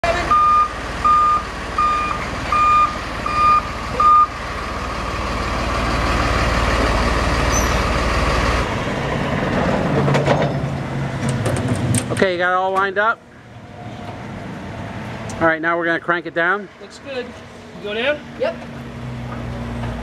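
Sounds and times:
truck reversing alarm beeping: 0:00.0 - 0:08.5
truck engine running: 0:00.0 - 0:12.4.

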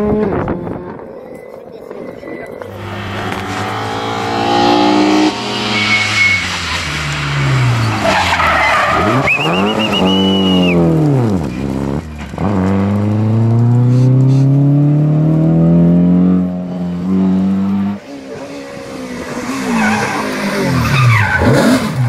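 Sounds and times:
rally car engine revving: 0:02.5 - 0:22.0
tyres squealing: 0:05.2 - 0:10.8.

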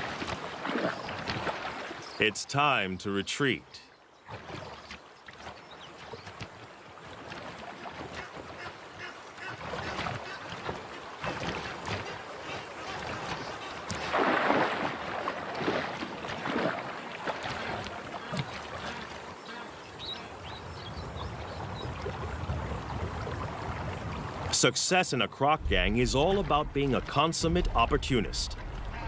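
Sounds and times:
water splashing and sloshing: 0:00.0 - 0:29.0
loud splash: 0:14.0 - 0:18.8, 0:25.5 - 0:29.0.

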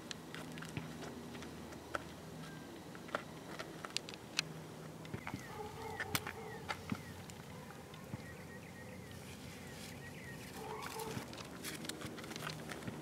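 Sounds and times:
bird chirps: 0:05.1 - 0:07.3, 0:07.9 - 0:11.0.

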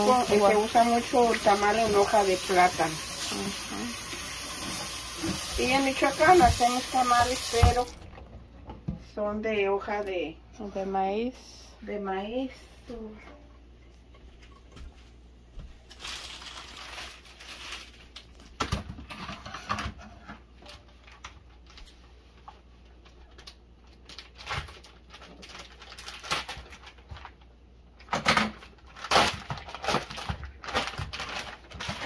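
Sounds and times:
plastic package crinkling: 0:15.8 - 0:18.7, 0:23.0 - 0:32.0.

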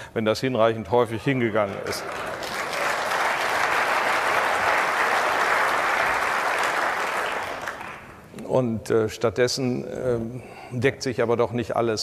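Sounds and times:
audience applauding: 0:01.6 - 0:08.2.

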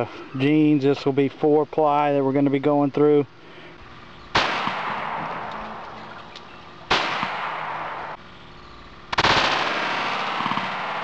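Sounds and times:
loud gunshot blast: 0:04.3 - 0:05.8, 0:06.9 - 0:08.2, 0:09.1 - 0:11.0
pistol shot: 0:04.3 - 0:05.9, 0:06.9 - 0:08.2, 0:09.1 - 0:11.0.

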